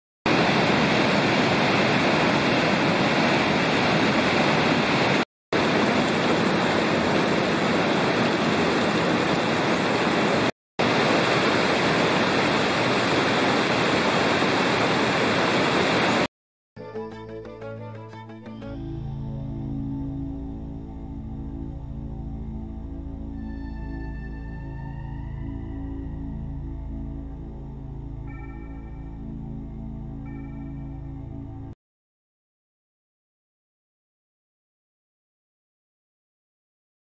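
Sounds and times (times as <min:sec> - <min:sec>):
rushing whitewater: 0:00.3 - 0:16.3.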